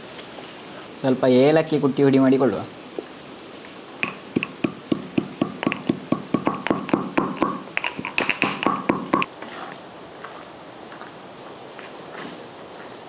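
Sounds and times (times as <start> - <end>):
stone pestle pounding in mortar: 4.0 - 9.3.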